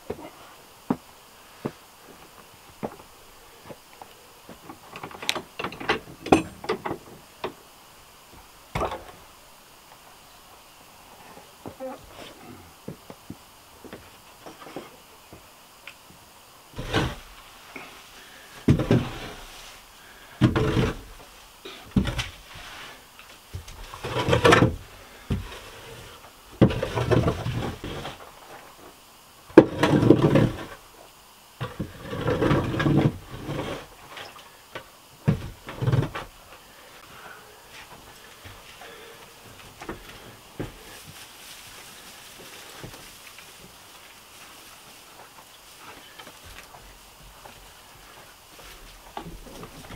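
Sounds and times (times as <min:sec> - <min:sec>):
shovel scraping barn floor: 0:16.7 - 0:18.0, 0:18.7 - 0:28.6, 0:29.5 - 0:30.8, 0:31.6 - 0:34.3.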